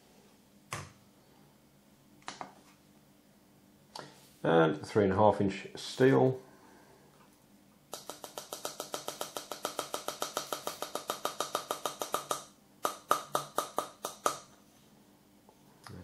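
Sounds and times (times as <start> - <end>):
fingers tapping plastic cartridge: 7.9 - 14.4.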